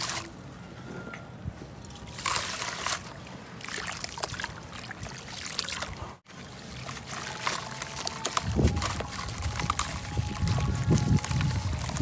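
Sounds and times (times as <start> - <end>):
dry material fizzing in water: 5.2 - 12.0.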